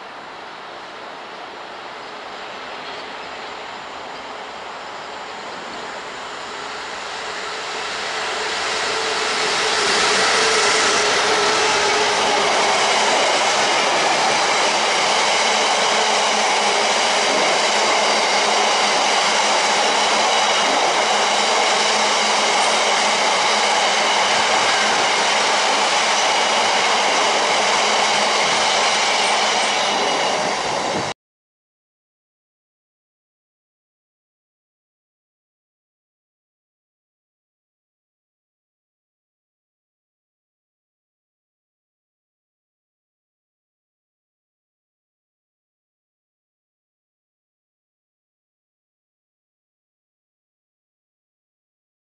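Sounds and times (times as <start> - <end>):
freight train wheels rumbling: 0.7 - 31.1.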